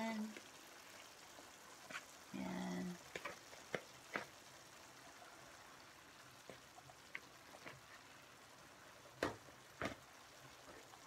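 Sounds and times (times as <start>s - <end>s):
food simmering crackle: 0.0s - 11.0s.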